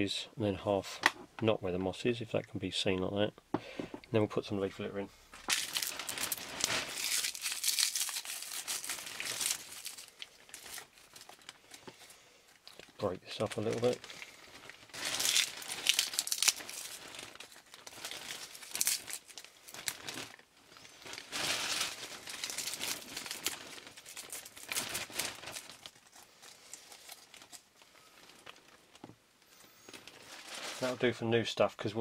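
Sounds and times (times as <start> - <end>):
dry leaves crumbled by hand: 5.4 - 11.6, 14.9 - 27.7.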